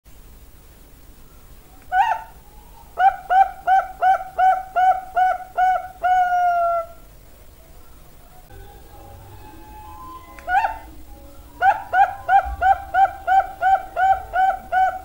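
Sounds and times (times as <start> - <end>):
dove cooing: 1.9 - 7.1, 8.5 - 15.0.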